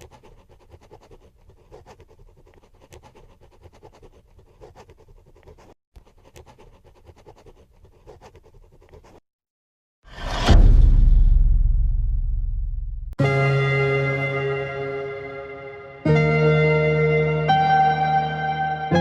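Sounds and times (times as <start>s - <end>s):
crayon scratching on paper: 0.0s - 9.3s.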